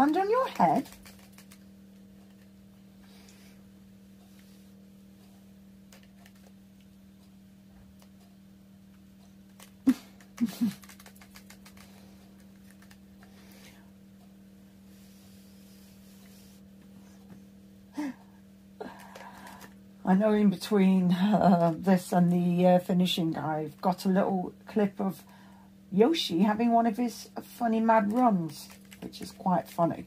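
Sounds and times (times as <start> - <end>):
low electrical hum: 0.0 - 30.0.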